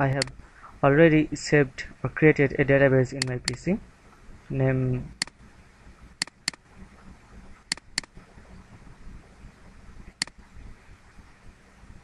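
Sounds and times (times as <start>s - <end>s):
faint steady hiss: 0.0s - 12.0s
computer mouse clicking: 7.7s - 8.1s, 10.2s - 10.4s.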